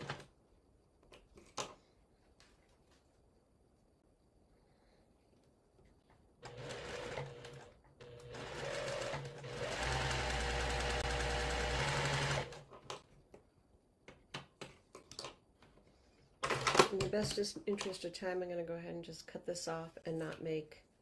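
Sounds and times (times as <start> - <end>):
sewing machine stitching: 6.4 - 13.0.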